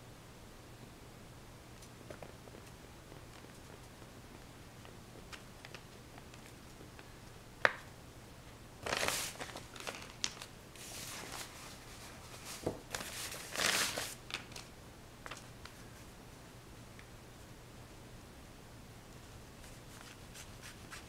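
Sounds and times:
rustling and scraping: 8.8s - 14.7s.

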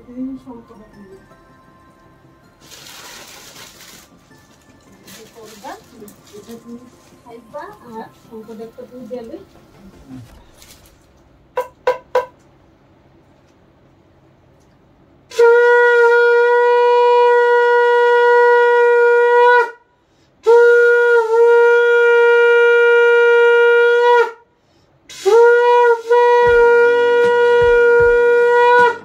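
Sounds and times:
conch shell blasts: 15.3s - 19.8s, 25.1s - 29.0s
breaths: 19.9s - 20.4s, 24.5s - 25.1s.

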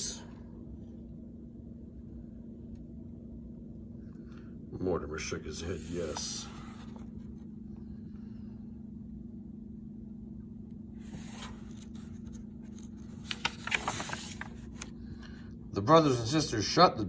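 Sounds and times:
steady low hum: 0.0s - 17.0s
paper pages rustling: 11.0s - 15.0s.

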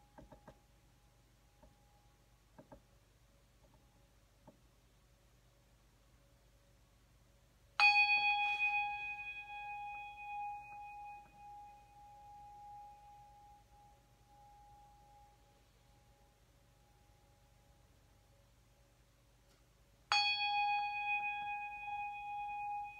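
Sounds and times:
brass hand bell ringing: 7.8s - 13.2s.

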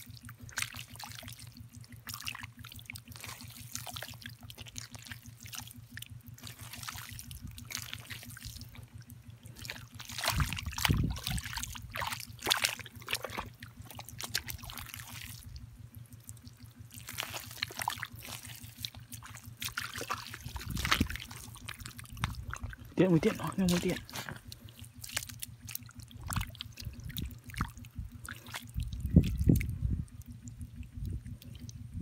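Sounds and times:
wet slaps and splashes: 0.0s - 15.6s, 16.2s - 29.7s
hand squelching through wet mud: 0.0s - 31.8s
steady low hum: 0.0s - 32.0s.

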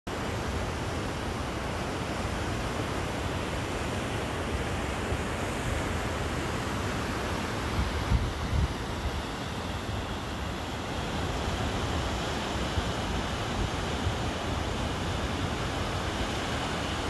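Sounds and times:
waterfall and rapids rushing: 0.1s - 17.0s
wind buffeting microphone: 7.6s - 10.1s.

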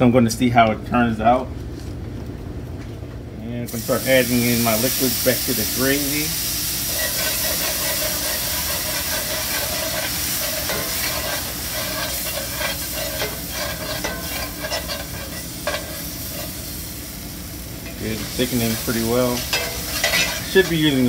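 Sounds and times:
roux sizzling in a skillet: 3.7s - 21.0s
spatula scraping the pan: 6.9s - 16.7s, 18.3s - 21.0s.

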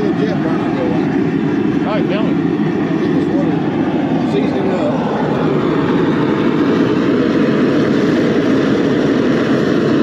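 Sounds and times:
propane burner rushing: 0.0s - 10.0s.

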